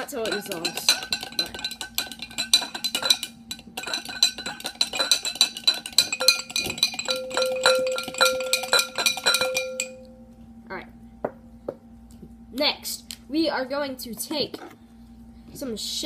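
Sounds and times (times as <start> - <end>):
spoon clinking against glass jar: 0.0 - 10.1
glass jar ringing: 0.0 - 10.2.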